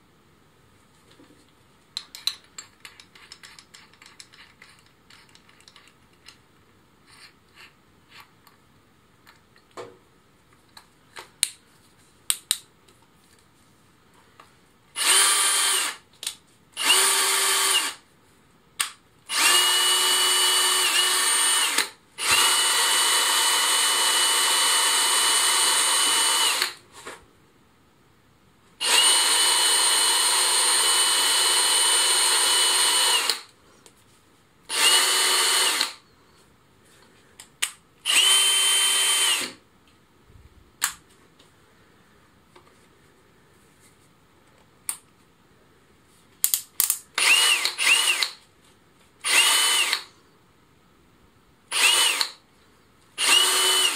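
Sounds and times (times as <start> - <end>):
cordless drill motor whine: 15.0 - 16.0, 16.8 - 18.0, 19.3 - 26.8, 28.8 - 33.4, 34.7 - 36.0, 38.1 - 39.6, 47.2 - 48.3, 49.2 - 50.1, 51.7 - 52.3, 53.2 - 53.9.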